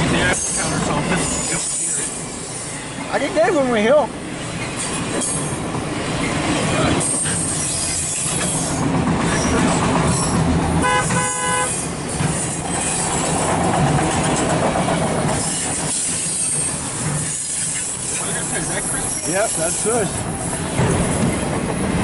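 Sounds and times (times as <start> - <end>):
freight train wheels rumbling: 0.0 - 22.0
short horn toot: 10.8 - 11.8.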